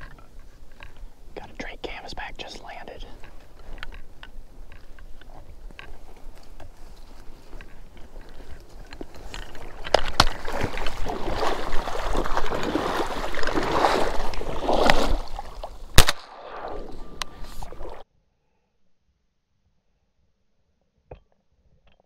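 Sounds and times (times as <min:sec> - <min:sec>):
dry reeds rustling: 0:02.7 - 0:16.0
shotgun shot: 0:16.0 - 0:17.1.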